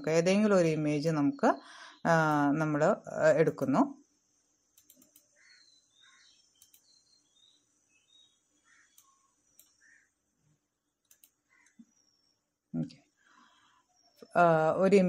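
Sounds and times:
soft clicks: 4.7 - 5.3, 6.5 - 6.9, 8.9 - 9.9, 11.0 - 11.9
faint high chirps: 4.8 - 10.2.

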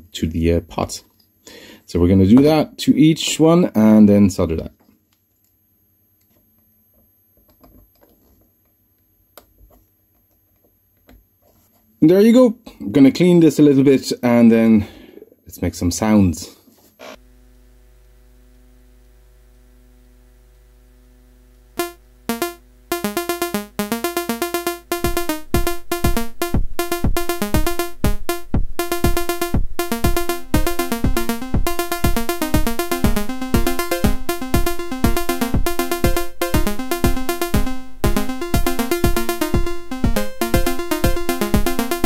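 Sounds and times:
sequenced synth notes: 21.8 - 42.0
synthesizer drone: 21.8 - 42.0
low drum beat: 25.0 - 42.0.

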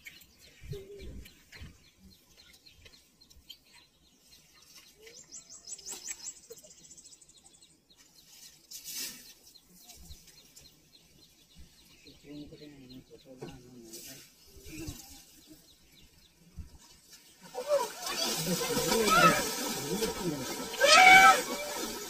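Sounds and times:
wild birds chirping: 0.0 - 22.0.

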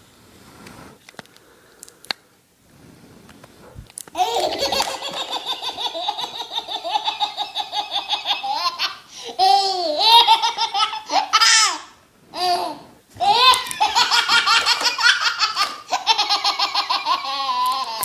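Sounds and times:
baby laughing: 4.2 - 18.0.

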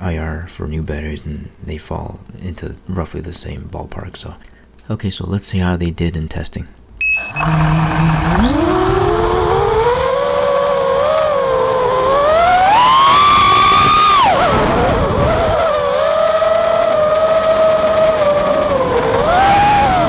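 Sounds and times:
drone motors whining: 6.9 - 20.0.

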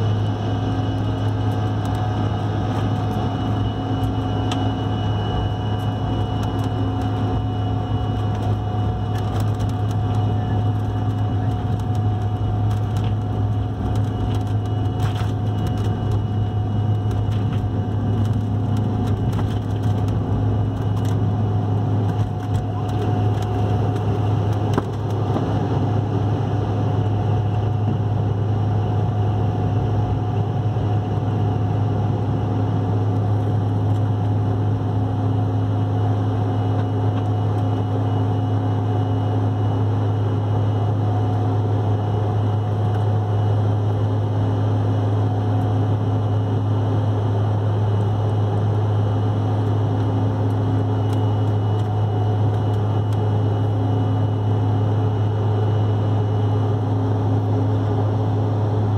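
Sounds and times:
airliner cabin engine drone: 0.0 - 58.9.

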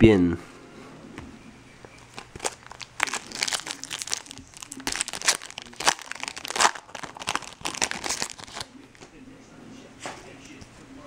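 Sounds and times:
foil wrapper crinkling: 2.0 - 8.7.

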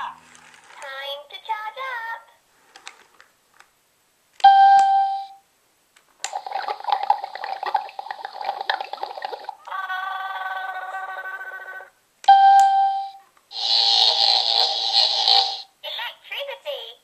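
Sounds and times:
electronic toy beep: 4.4 - 5.4, 9.7 - 14.2
crackling electronic effect with tone: 13.5 - 15.7.

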